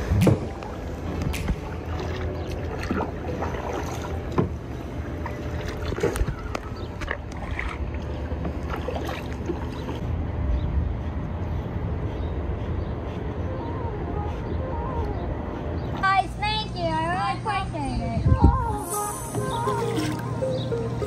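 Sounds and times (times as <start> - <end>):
paddles splashing in water: 0.0 - 10.0
steady low rumble: 0.0 - 21.0.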